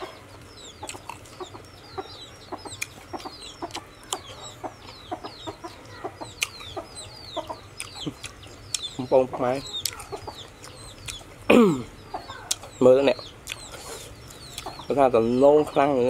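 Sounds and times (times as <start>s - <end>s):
chickens clucking: 0.0s - 16.0s
small birds chirping: 0.0s - 16.0s
crunchy chewing: 0.7s - 1.8s, 2.6s - 4.4s, 5.8s - 6.8s, 7.4s - 11.5s, 13.4s - 14.9s.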